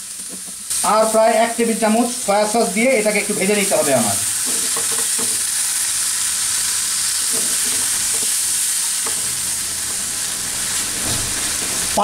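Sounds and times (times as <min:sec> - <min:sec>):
food sizzling in frying pan: 0:00.0 - 0:12.0
spatula knocking pan: 0:04.4 - 0:05.4, 0:09.0 - 0:09.4.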